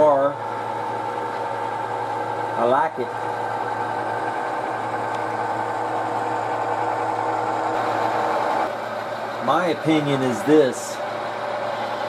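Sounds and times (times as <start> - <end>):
model locomotive mechanical hum: 6.0 - 12.0.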